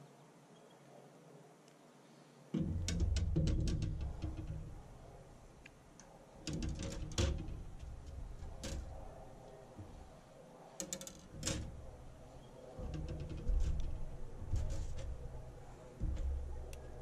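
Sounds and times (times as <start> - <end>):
rod sections clicking on glass: 2.6 - 5.0, 6.0 - 9.5, 10.8 - 17.0.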